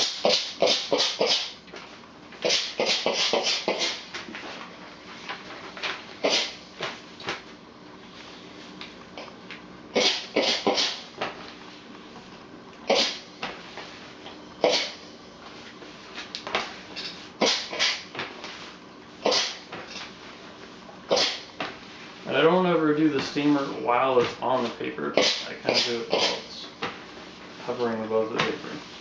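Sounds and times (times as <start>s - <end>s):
clothes iron hissing swishes: 0.0s - 1.6s, 2.4s - 7.3s, 12.9s - 29.0s.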